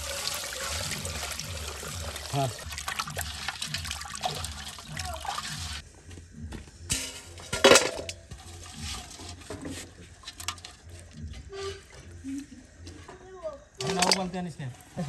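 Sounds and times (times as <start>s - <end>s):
water sloshing and splashing: 0.0s - 5.8s
clatter in a metal pot: 6.9s - 10.9s.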